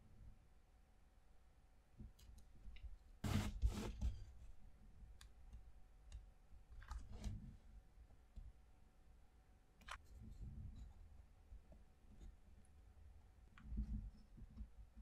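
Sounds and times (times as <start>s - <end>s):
wood rubbing: 3.2s - 4.3s.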